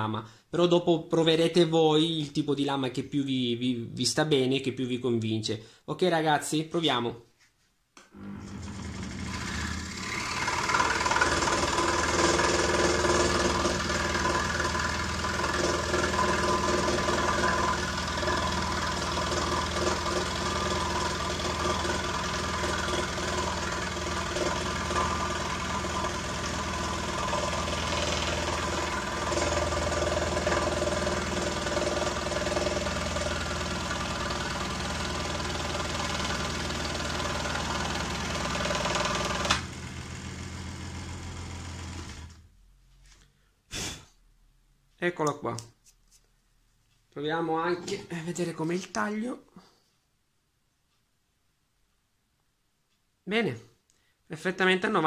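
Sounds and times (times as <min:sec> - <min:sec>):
scroll saw cutting wood: 0:08.2 - 0:42.4.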